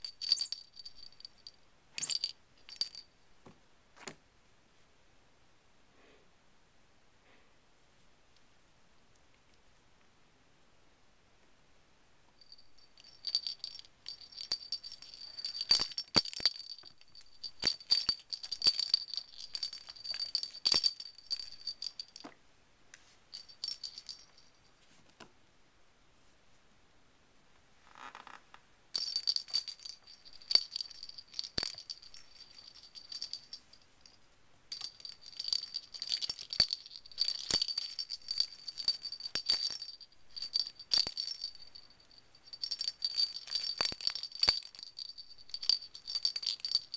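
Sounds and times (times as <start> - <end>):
bell toy jingling and rattling: 0.0 - 3.1, 12.4 - 22.2, 23.3 - 24.6, 28.9 - 46.9.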